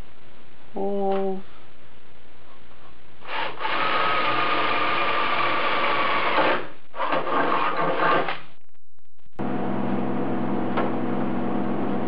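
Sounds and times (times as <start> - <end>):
drill boring through metal: 3.2 - 8.4.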